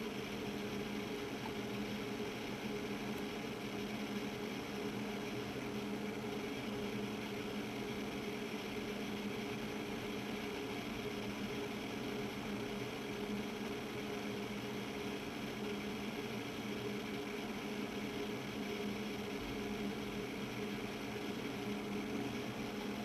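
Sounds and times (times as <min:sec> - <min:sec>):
machine hum with low tones: 0:00.0 - 0:23.0.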